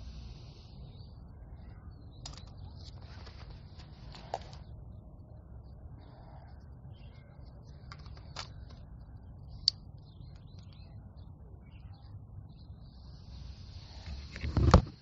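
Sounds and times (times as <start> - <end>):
sharp plastic clicks: 7.8 - 8.9.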